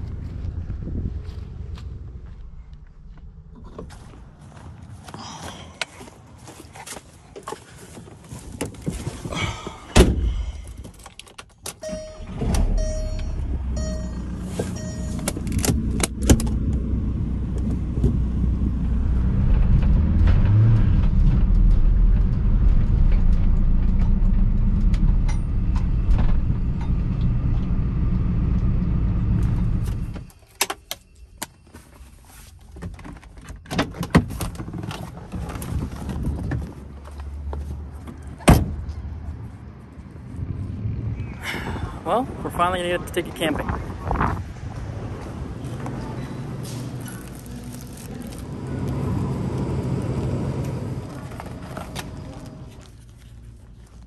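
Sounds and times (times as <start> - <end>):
car engine starting: 0.0 - 5.2, 8.7 - 30.4, 33.1 - 54.0
engine and road noise: 0.0 - 54.0
car door thumping shut: 10.0 - 10.4
warning chime: 11.8 - 15.3.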